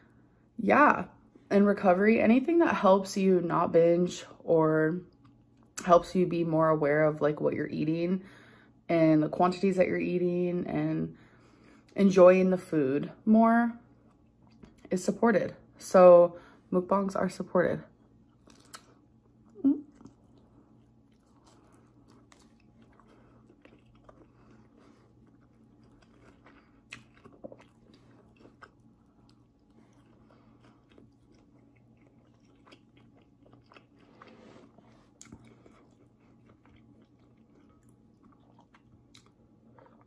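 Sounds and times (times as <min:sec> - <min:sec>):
steady low hum: 0:00.0 - 0:40.0
faint chewing: 0:18.0 - 0:40.0.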